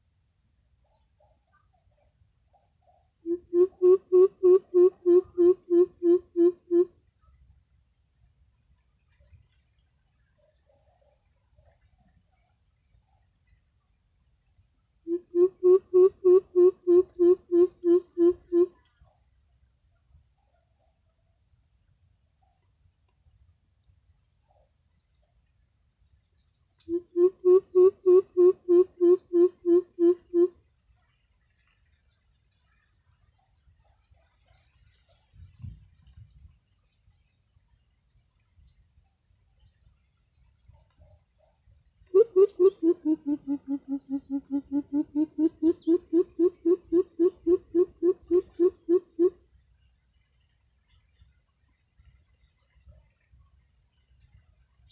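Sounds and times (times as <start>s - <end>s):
bird deep hoots: 42.2s - 49.4s
insects shrilling: 42.2s - 50.0s.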